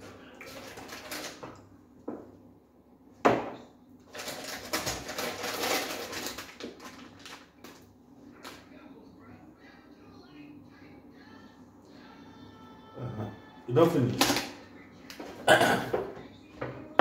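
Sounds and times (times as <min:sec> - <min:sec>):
plastic packaging crinkling: 0:00.5 - 0:01.4, 0:04.1 - 0:08.6
item knocking on wooden table: 0:03.2 - 0:03.6.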